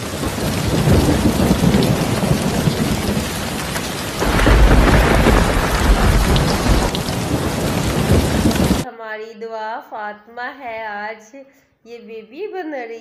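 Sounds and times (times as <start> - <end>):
heavy rain on tiled floor: 0.0 - 8.8
deep rumble: 4.2 - 8.8.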